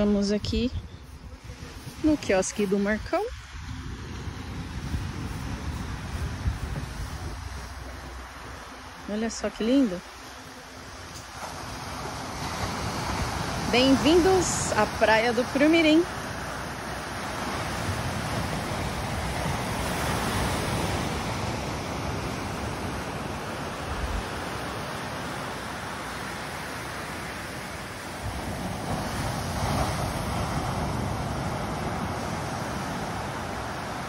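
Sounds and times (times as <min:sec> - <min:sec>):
small waves breaking on beach: 0:00.0 - 0:34.0.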